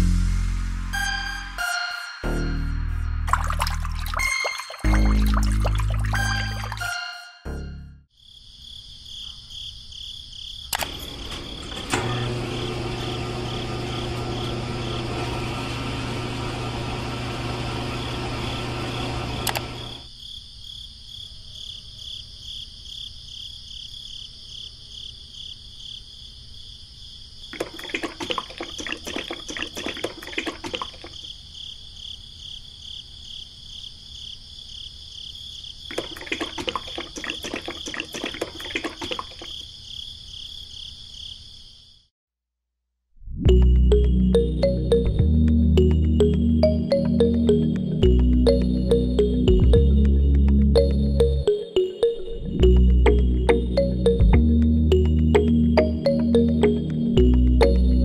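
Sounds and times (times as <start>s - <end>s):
wet cement sloshing: 3.3s - 6.8s, 27.6s - 31.2s, 35.9s - 39.6s
small electric motor humming: 12.0s - 20.0s.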